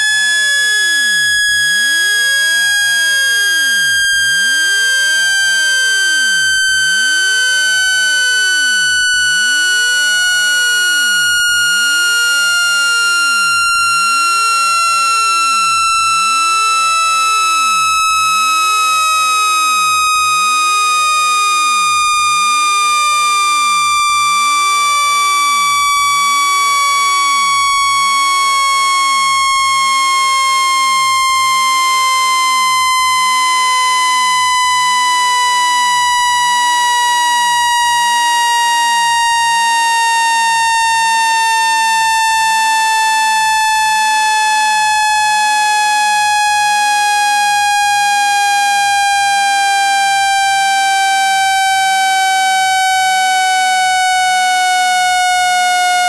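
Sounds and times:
electronic tone gliding down: 0.0 - 20.5.

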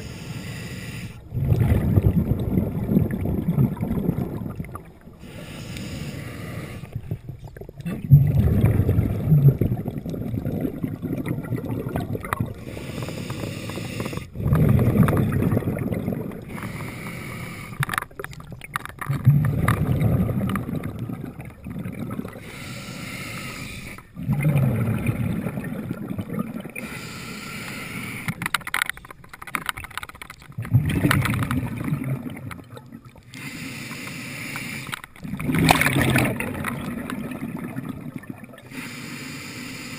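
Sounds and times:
underwater rushing rumble: 1.3 - 5.0, 7.8 - 12.6, 14.3 - 16.6, 19.1 - 22.4, 24.2 - 26.7, 35.2 - 38.4.

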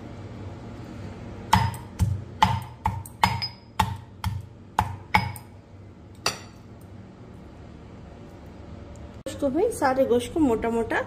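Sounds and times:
pestle pounding meat in mortar: 1.5 - 5.4.

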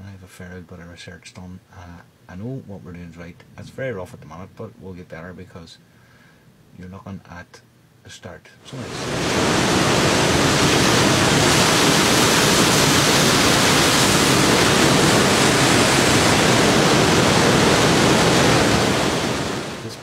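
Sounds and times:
surf breaking over rocks: 8.6 - 20.0.

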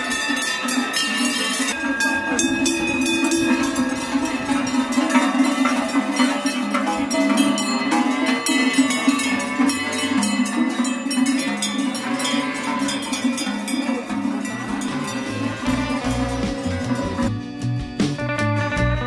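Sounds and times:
cow bells clanking: 0.0 - 17.3.

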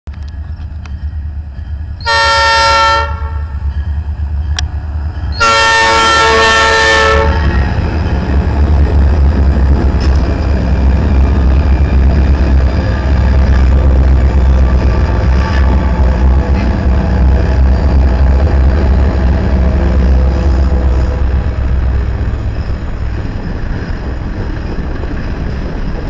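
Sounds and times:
diesel locomotive engine rumble: 0.1 - 26.0
locomotive air horn blasts: 2.0 - 3.6, 5.4 - 7.6.

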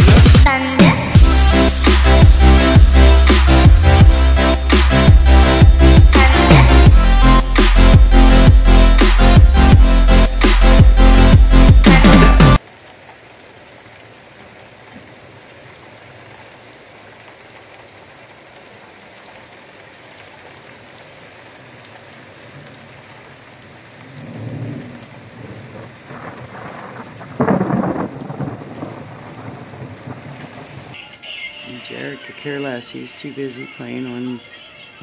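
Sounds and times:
rain on grass and pavement: 12.6 - 35.0
thunder rumbling: 24.0 - 31.0.

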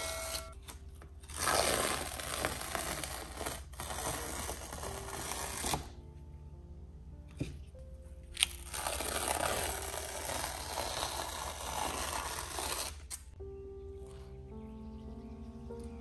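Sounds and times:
masking tape tearing off: 0.0 - 6.0, 8.4 - 13.4.

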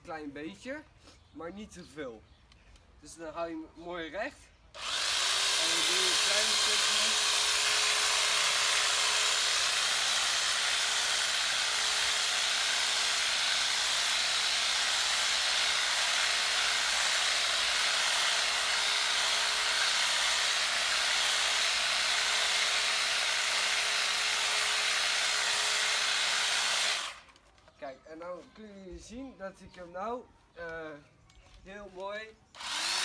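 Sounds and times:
electric hedge trimmer running: 4.8 - 27.3, 32.6 - 33.0.

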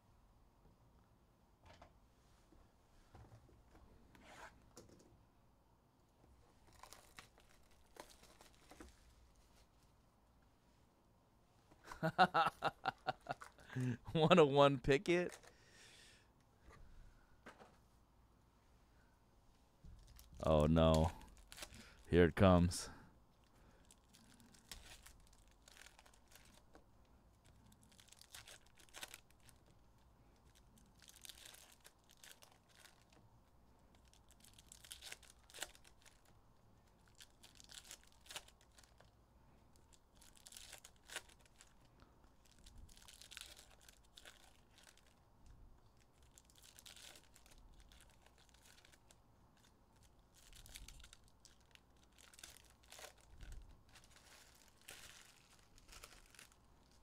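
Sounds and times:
wrapper crinkling and tearing: 6.6 - 8.9, 20.1 - 22.0, 23.7 - 26.8, 27.4 - 29.8, 30.4 - 33.2, 33.9 - 39.1, 39.7 - 45.2, 45.9 - 57.0.

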